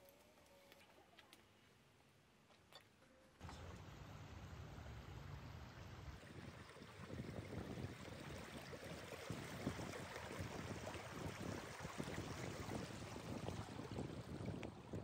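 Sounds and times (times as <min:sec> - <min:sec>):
stream water flowing over stones: 0:06.2 - 0:14.7.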